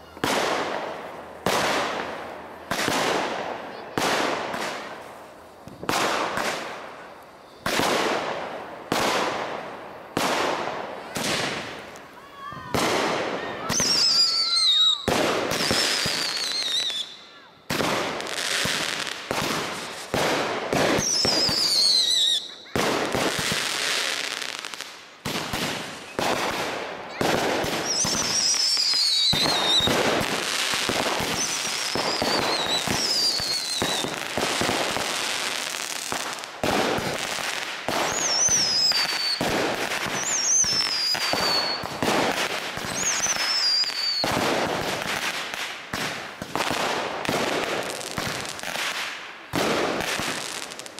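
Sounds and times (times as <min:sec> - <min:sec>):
fireworks bangs and crackles: 0:00.0 - 0:50.9
fireworks whistles falling: 0:11.0 - 0:24.2, 0:27.1 - 0:36.2, 0:37.9 - 0:45.0.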